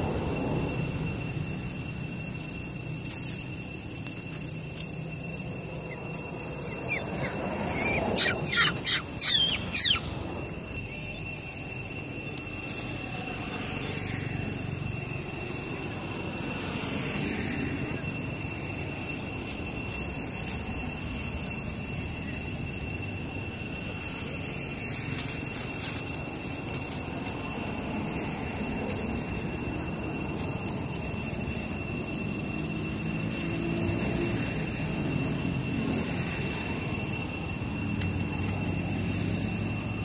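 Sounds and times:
steady high-pitched tones: 0.0 - 40.0
monkey squealing: 5.7 - 11.3.

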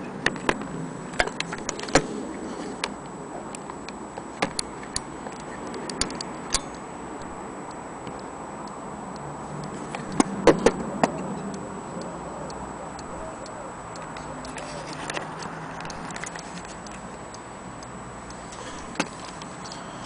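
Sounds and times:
clock being handled clicks: 13.9 - 17.2.

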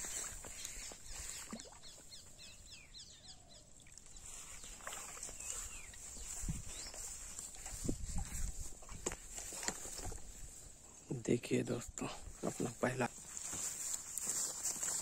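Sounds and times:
small birds chirping: 0.0 - 9.0.

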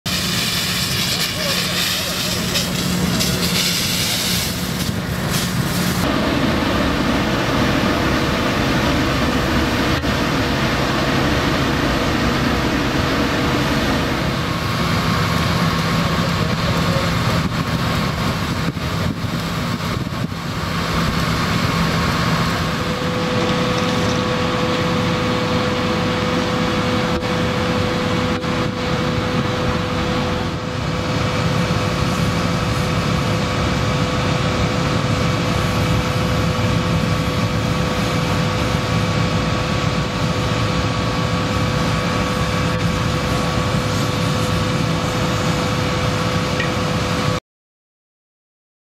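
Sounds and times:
hose water spray rushing: 0.1 - 6.1
engine hum: 0.1 - 47.4
gas flame roaring: 0.1 - 47.4.

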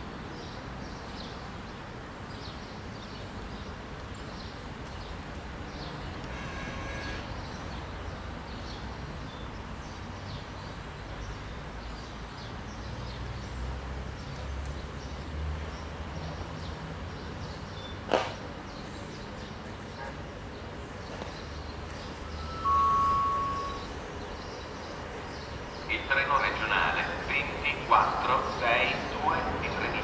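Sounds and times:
faint bird chirps: 22.2 - 24.9.

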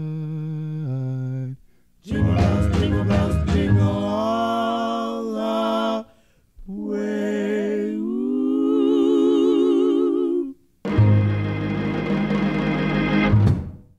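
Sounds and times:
man singing held notes: 0.0 - 10.6.

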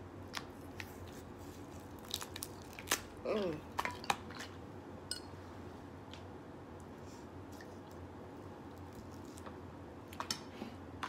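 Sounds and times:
low steady hum: 0.0 - 11.0
wet squishing of crab legs: 1.6 - 4.6.

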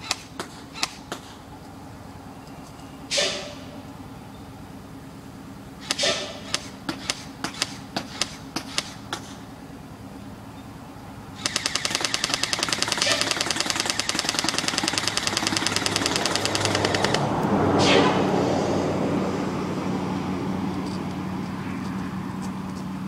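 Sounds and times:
airsoft rifle shots: 5.8 - 9.3, 11.4 - 17.2.

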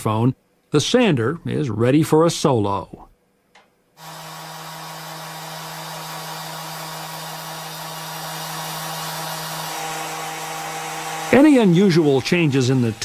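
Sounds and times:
electric sander running: 4.0 - 13.0.

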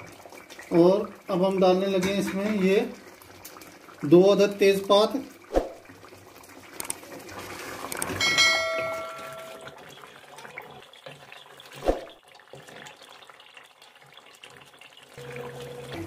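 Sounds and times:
spoon knocking against pot: 8.2 - 9.6
short ringing chime: 8.2 - 9.7.

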